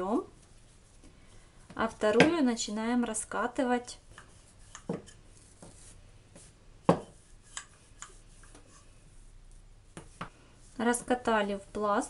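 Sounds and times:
rolling pin rolling dough: 4.1s - 9.3s.

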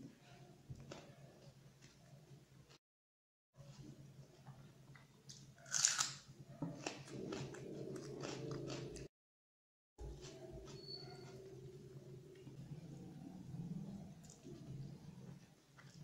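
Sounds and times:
close-up chewing: 4.4s - 9.1s
crunchy bite: 5.6s - 9.0s.

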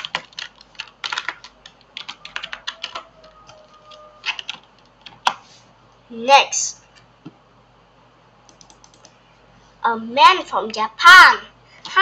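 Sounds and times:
typing on computer keyboard: 0.0s - 5.4s, 8.5s - 9.2s.

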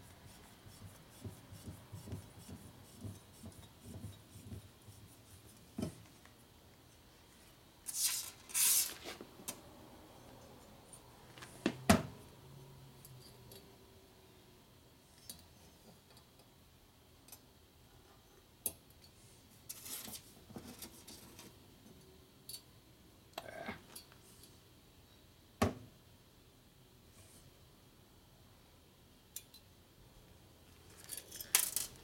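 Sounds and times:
small metal parts clicking: 30.9s - 32.0s.

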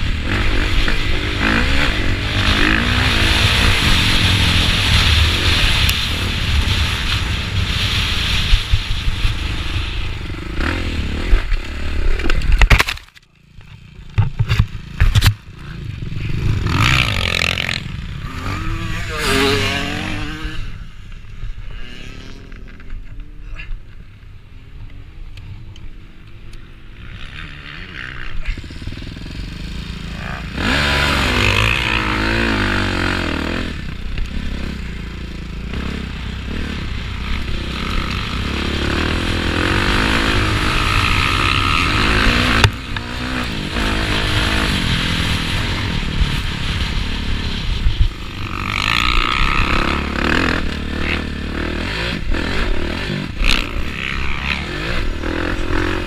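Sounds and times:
motocross bike engine revving: 0.0s - 12.6s, 13.8s - 23.4s, 26.8s - 56.0s
wind noise on microphone: 0.0s - 12.8s.

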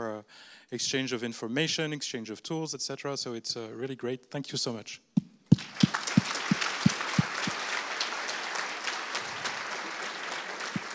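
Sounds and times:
audience applauding: 5.5s - 10.9s
hands clapping close to microphone: 5.5s - 10.9s.

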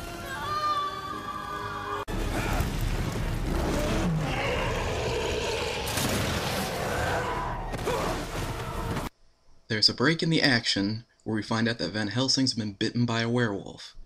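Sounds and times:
action film sound effects: 0.0s - 9.1s.

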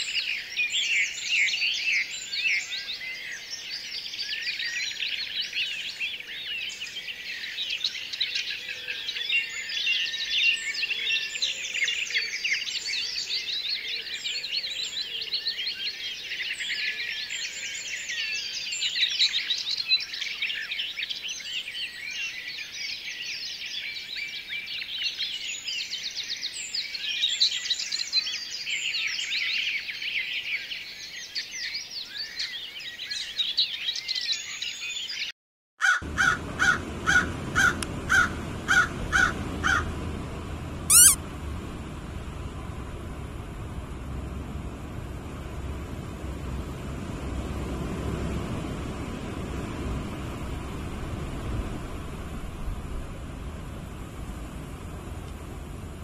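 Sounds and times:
small birds chirping: 40.9s - 41.2s.

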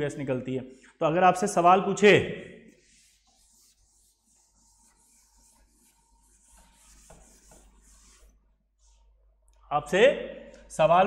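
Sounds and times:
duster swishing on chalkboard: 2.7s - 9.1s.

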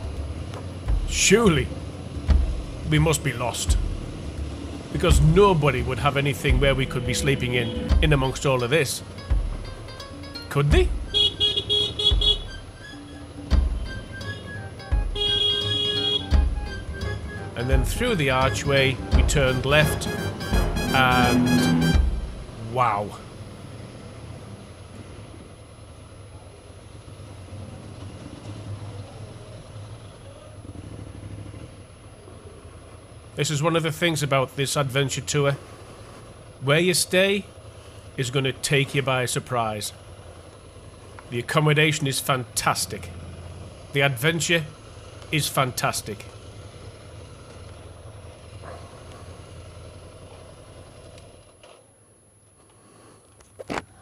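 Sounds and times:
motorcycle engine at low revs: 0.0s - 19.5s, 21.8s - 51.9s.

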